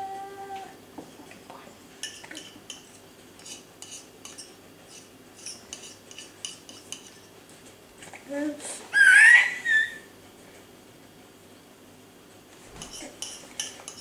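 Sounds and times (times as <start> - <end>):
baby humming: 0.0 - 0.8
spoon clinking against bowl: 2.0 - 7.3, 12.8 - 14.0.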